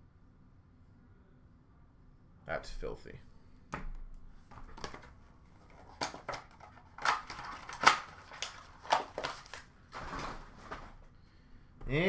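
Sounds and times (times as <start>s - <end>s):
plastic cases clicking and tapping: 4.5s - 5.1s
wrapper rustling: 4.6s - 11.1s.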